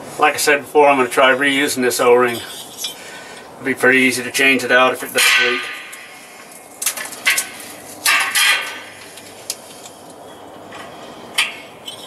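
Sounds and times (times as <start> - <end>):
sharp metal knocks: 5.2 - 6.2, 6.9 - 9.0
metal parts clanking: 6.8 - 9.3.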